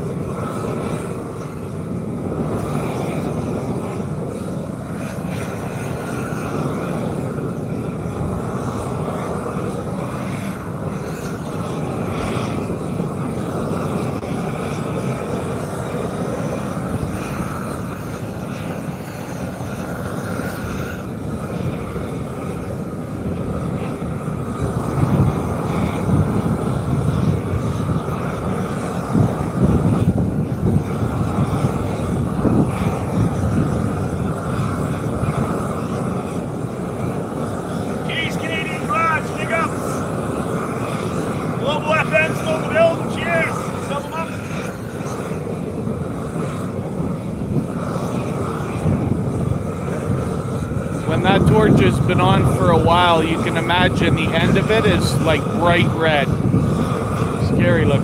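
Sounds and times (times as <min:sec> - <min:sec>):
torch burning: 0:00.0 - 0:58.0.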